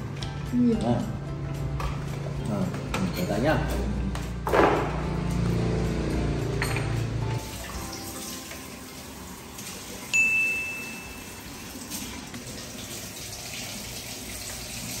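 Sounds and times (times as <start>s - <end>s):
high chime: 10.1s - 11.5s.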